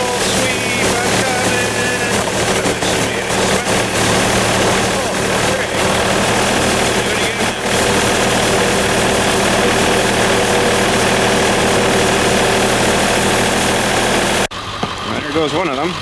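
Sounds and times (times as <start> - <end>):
rotary brush sweeping slush: 0.0 - 14.5
tractor diesel engine running: 0.0 - 16.0.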